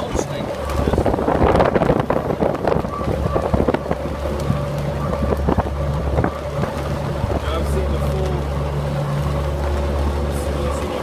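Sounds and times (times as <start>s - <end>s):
wind rushing: 0.8s - 7.5s.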